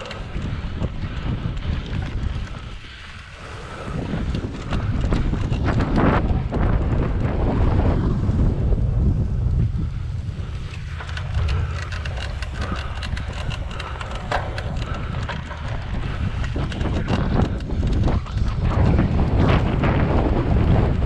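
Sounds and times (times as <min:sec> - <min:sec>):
bike rattling over bumpy ground: 0:00.0 - 0:21.0
wind buffeting microphone: 0:00.0 - 0:21.0
sharp clicks: 0:10.5 - 0:19.0.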